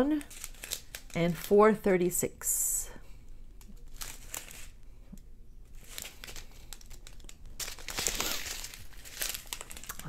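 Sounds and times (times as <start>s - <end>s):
plastic bags crinkling: 0.0s - 1.6s, 3.7s - 4.8s, 5.6s - 10.0s.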